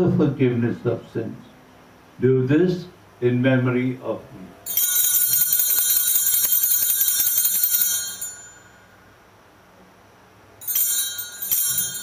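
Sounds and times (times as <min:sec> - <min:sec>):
altar bells jingling: 0:04.7 - 0:09.0, 0:10.6 - 0:12.0.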